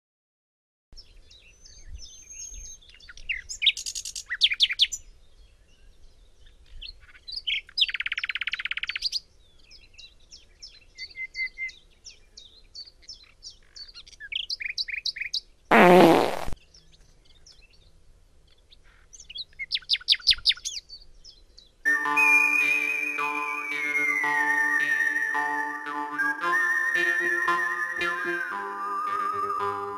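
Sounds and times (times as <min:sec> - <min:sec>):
fart: 0:15.7 - 0:16.6
music: 0:21.9 - 0:29.9.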